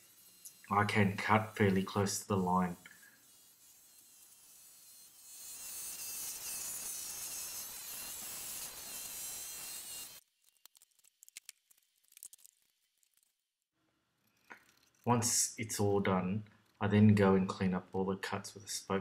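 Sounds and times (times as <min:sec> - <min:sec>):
scroll saw buzzing: 0:00.0 - 0:10.3.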